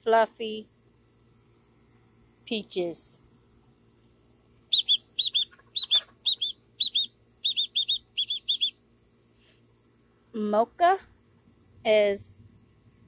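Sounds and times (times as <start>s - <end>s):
bird chirping: 4.2s - 9.6s.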